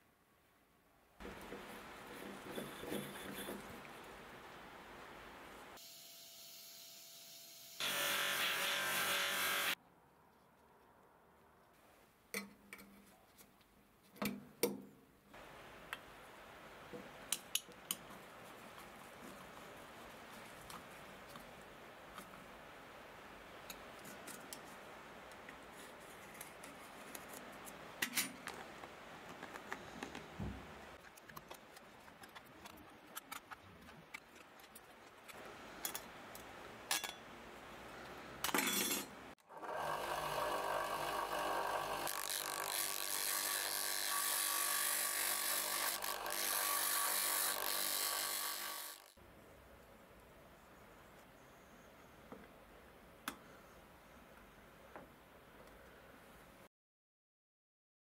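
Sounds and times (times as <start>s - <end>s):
disc sander running: 39.5s - 49.1s.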